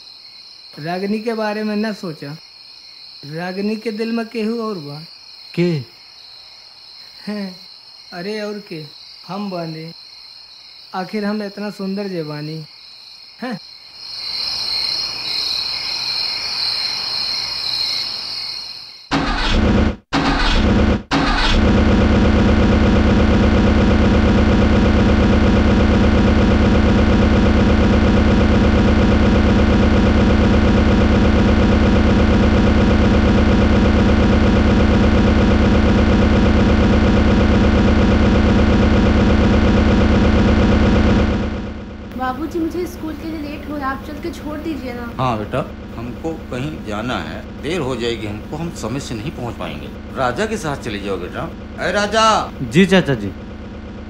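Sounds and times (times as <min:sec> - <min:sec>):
crickets chirping: 0:00.0 - 0:19.1, 0:42.2 - 0:53.8
grain mill humming: 0:21.0 - 0:54.0.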